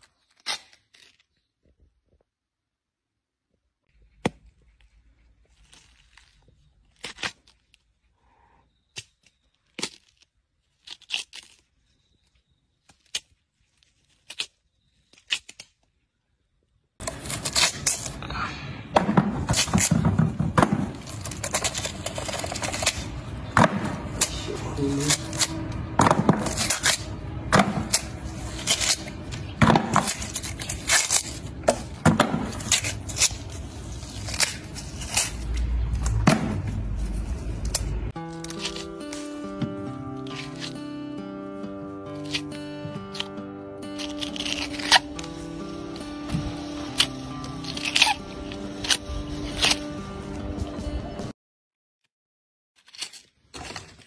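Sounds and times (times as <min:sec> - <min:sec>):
rind crunching and tearing: 0:00.0 - 0:01.6, 0:04.0 - 0:08.2, 0:08.9 - 0:16.4, 0:17.0 - 0:18.5, 0:20.7 - 0:39.4, 0:40.2 - 0:41.0, 0:41.8 - 0:50.0, 0:52.8 - 0:54.0
watermelon rind snapping: 0:05.6 - 0:07.8, 0:08.9 - 0:11.8, 0:12.8 - 0:15.9, 0:26.4 - 0:36.2, 0:42.1 - 0:45.3, 0:46.7 - 0:49.9.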